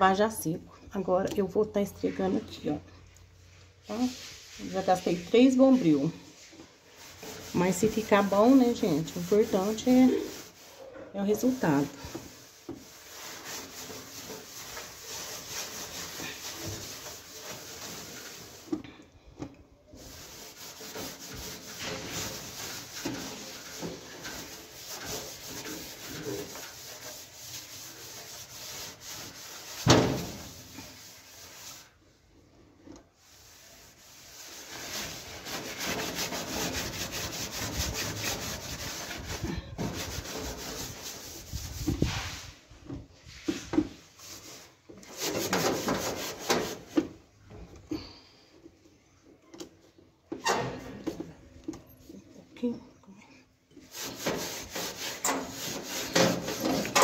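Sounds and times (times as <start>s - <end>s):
steel wool scrubbing metal: 3.8s - 18.8s, 20.0s - 32.0s, 33.2s - 42.5s, 44.2s - 46.9s, 53.8s - 57.0s.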